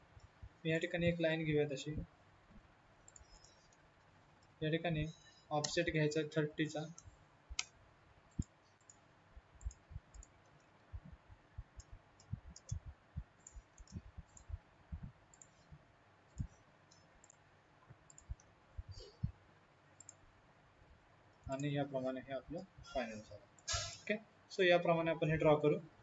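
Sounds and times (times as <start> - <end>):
mouse and keyboard clicking: 3.0 - 3.8, 6.8 - 9.0, 9.6 - 10.9, 11.8 - 14.6, 15.3 - 15.7, 18.1 - 18.5, 20.0 - 20.2.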